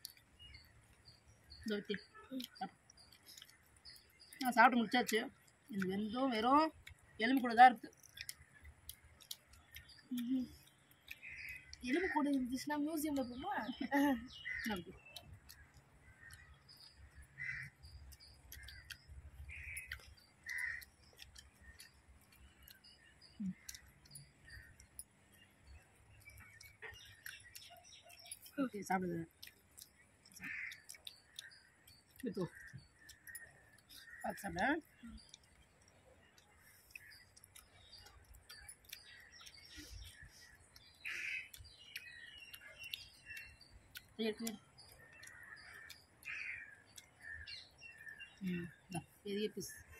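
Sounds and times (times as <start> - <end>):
faint birds chirping: 0.0 - 49.9
crows cawing: 17.4 - 17.8, 20.5 - 20.9, 30.4 - 30.8, 45.3 - 47.4
faint clicks: 29.4 - 48.2.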